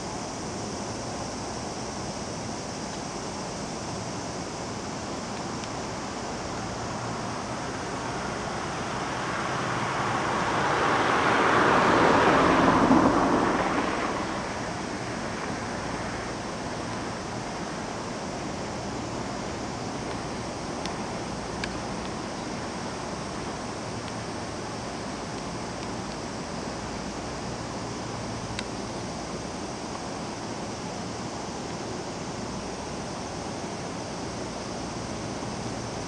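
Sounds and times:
outdoor background noise: 0.0 - 36.0
vehicle passing by: 8.2 - 16.3.

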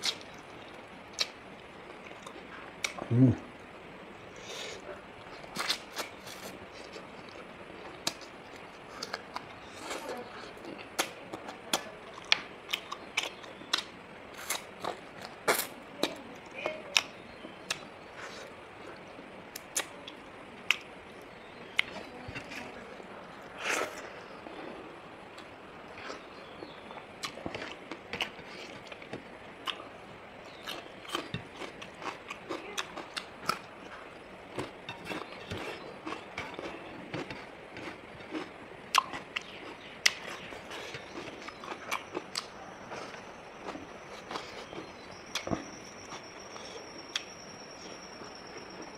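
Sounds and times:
person chewing: 4.4 - 16.2, 21.8 - 29.9, 30.5 - 47.3.

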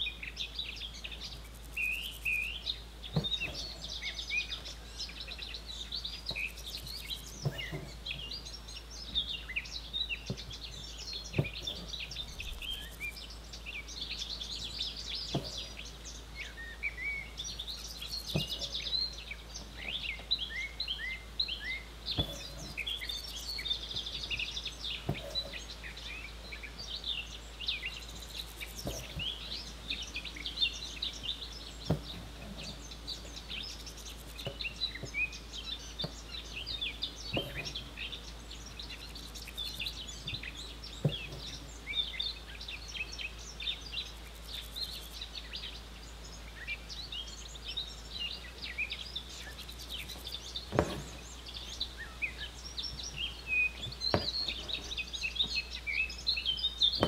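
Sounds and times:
small birds chirping: 0.0 - 57.0
knocks: 3.1 - 3.9, 6.3 - 8.3, 10.3 - 13.1, 15.3 - 15.8, 17.9 - 19.0, 22.1 - 24.4, 28.3 - 29.6, 31.8 - 35.4, 36.0 - 38.0, 39.4 - 41.7, 50.0 - 51.4, 52.9 - 55.6.

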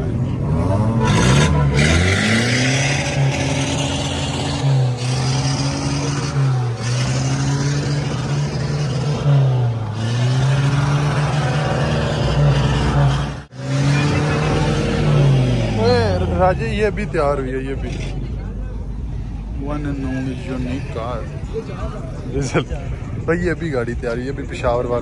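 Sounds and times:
car engine revving: 0.0 - 25.0.

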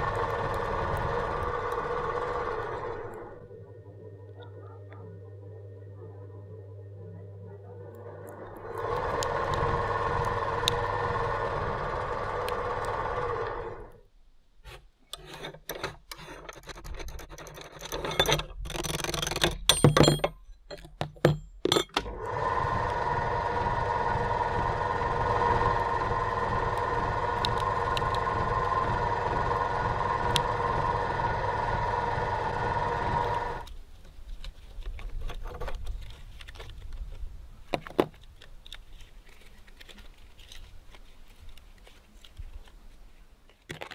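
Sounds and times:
meat grinder motor humming: 0.0 - 14.0, 22.1 - 33.7
metal clanks and knocks: 15.2 - 22.1
plastic crinkling: 38.2 - 42.9.

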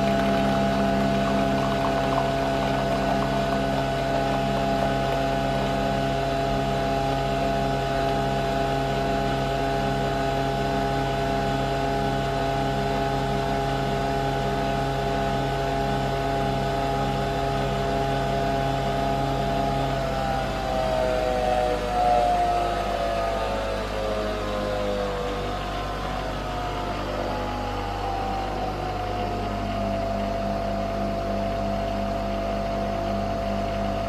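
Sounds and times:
coffee machine motor humming: 0.0 - 23.0, 24.0 - 34.0.

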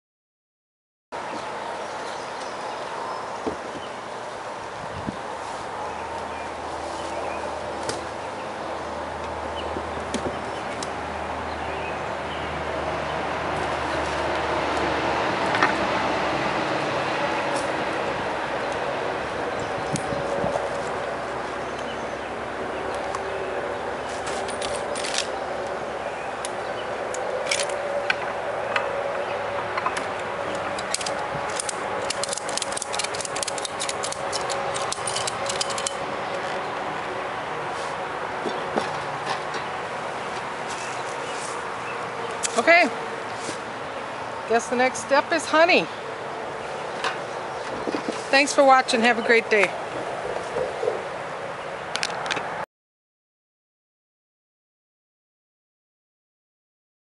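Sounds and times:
ratchet strap clicking: 30.2 - 36.0.

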